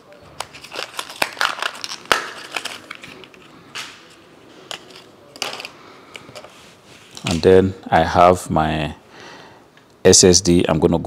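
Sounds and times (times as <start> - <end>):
packaging crinkling and cracking: 0.2 - 6.4.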